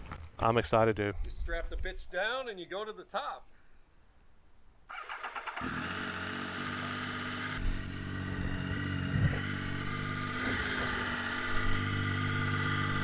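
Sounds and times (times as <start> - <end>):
motorcycle engine starting and idling: 4.9 - 13.0.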